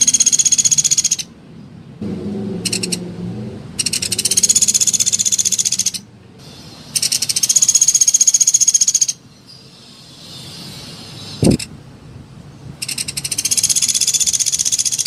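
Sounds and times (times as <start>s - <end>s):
woodpecker high-pitched trills: 0.0s - 1.3s, 2.7s - 3.0s, 3.8s - 9.2s, 12.8s - 15.0s.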